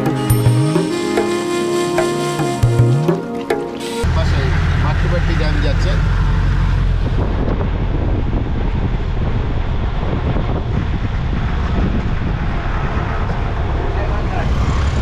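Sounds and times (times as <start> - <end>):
moving vehicle rumble: 3.8 - 15.0
wind buffeting microphone: 5.3 - 15.0.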